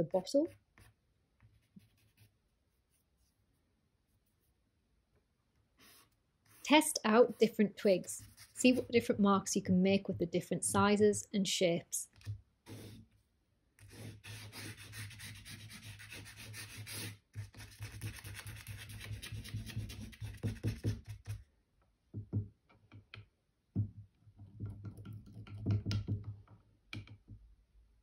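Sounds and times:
twig scratching on paper: 5.8 - 8.9, 13.8 - 21.4
taps on paper: 19.3 - 21.4.

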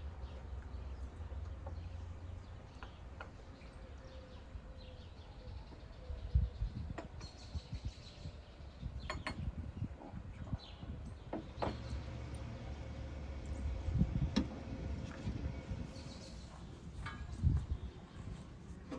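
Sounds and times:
wind rumble on microphone: 4.2 - 18.9.

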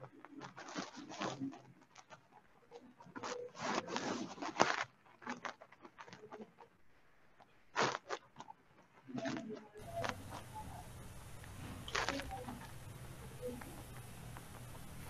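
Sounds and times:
rustles and clicks near microphone: 0.0 - 15.0
low hum and hiss: 9.8 - 15.0.

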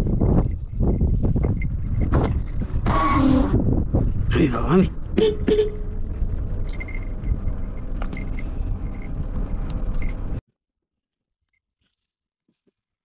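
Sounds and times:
car road rumble: 0.0 - 10.4
wind buffeting car window: 0.0 - 10.4.

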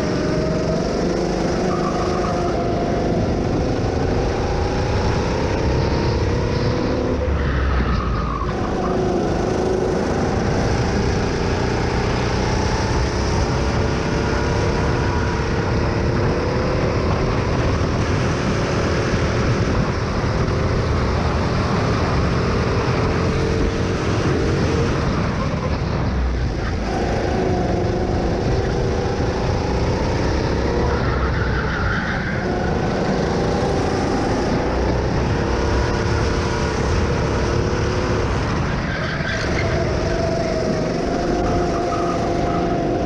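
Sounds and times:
go-kart engine running hard: 0.0 - 43.0.

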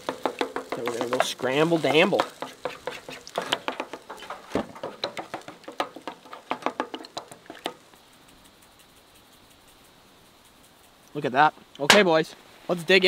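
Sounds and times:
spatula scraping frying pan: 0.0 - 8.0.

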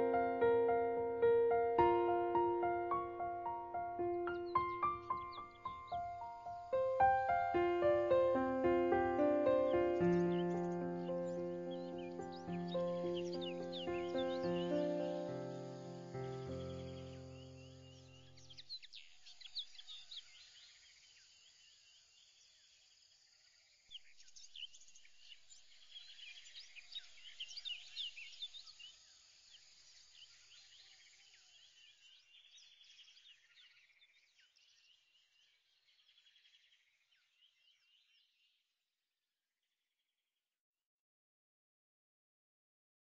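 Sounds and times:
birds chirping: 0.0 - 20.4.

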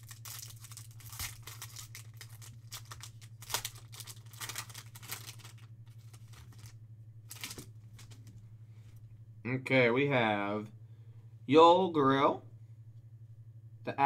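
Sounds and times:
foil wrapper crinkling and ripping: 0.0 - 8.2
low hum: 0.0 - 14.0.

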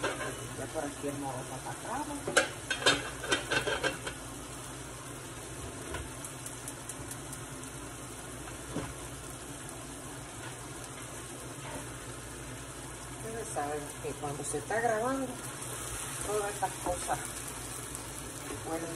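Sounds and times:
chicken sizzling in a skillet: 0.0 - 18.9
metal pot lid clattering: 2.4 - 4.2.

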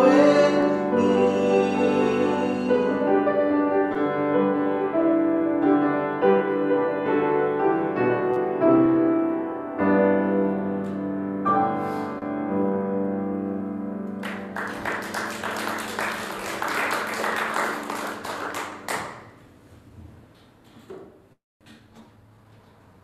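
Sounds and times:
upright piano playing: 0.0 - 19.4.

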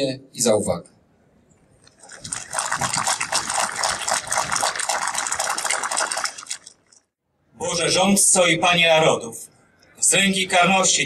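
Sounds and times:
crowd applauding: 2.0 - 6.8.

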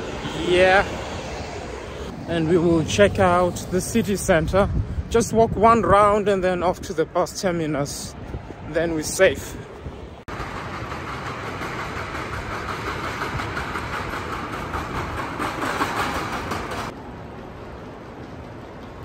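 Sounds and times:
trains: 0.0 - 4.4, 9.4 - 19.0
station hall noise: 10.3 - 19.0.

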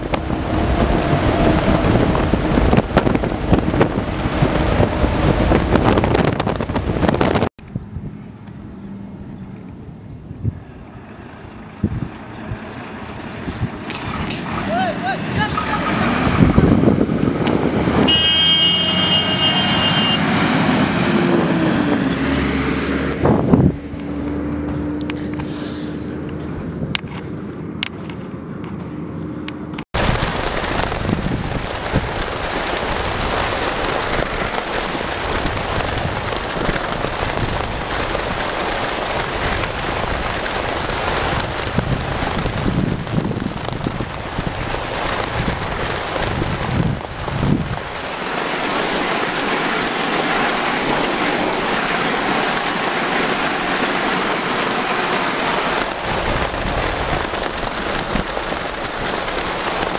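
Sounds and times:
wind buffeting microphone: 0.0 - 8.5, 11.7 - 18.2, 20.3 - 25.5, 30.0 - 59.9
engine and tyre rumble: 0.0 - 59.9.

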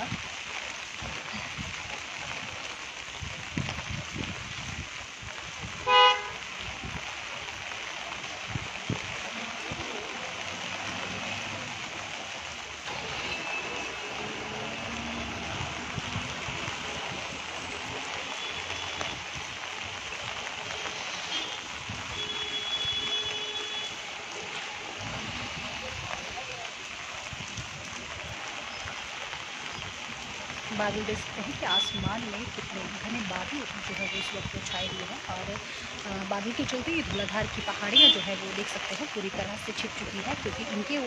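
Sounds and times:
rain hiss: 0.0 - 41.0
wind: 0.0 - 41.0
vehicle horn toot: 5.8 - 6.4, 21.3 - 24.0.

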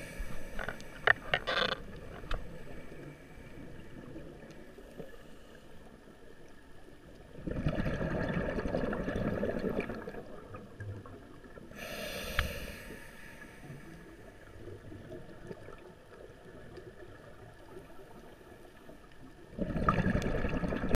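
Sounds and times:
regulator hissing inhale: 0.0 - 1.3, 2.3 - 3.8, 11.8 - 14.3
exhaled bubbles rushing underwater: 7.2 - 11.8, 19.4 - 20.9.

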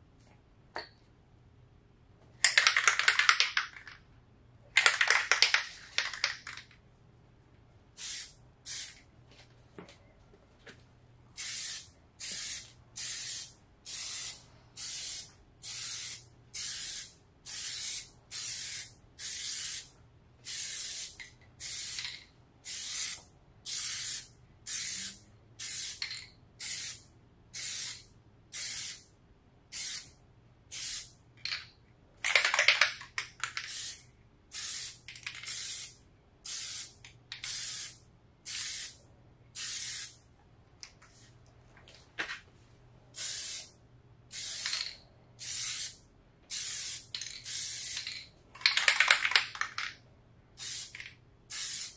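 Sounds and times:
spray can ball rattling: 2.4 - 4.0, 4.8 - 6.7, 20.5 - 26.2, 32.2 - 34.0, 34.6 - 35.9, 44.3 - 50.0, 50.6 - 51.9.

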